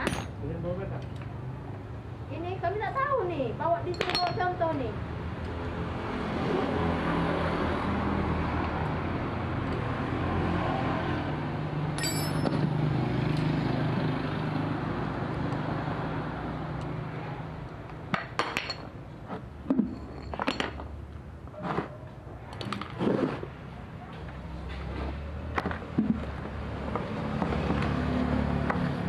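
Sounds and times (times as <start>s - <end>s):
metal tools clinking: 3.9s - 4.5s, 12.0s - 12.7s, 19.9s - 20.8s.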